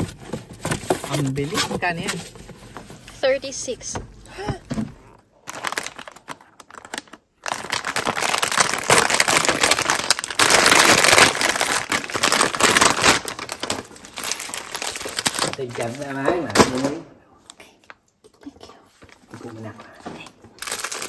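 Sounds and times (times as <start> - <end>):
cardboard packaging rustling: 0.0 - 3.8, 4.6 - 17.0, 20.5 - 21.0
snack packaging crinkling: 5.0 - 17.0, 20.6 - 21.0.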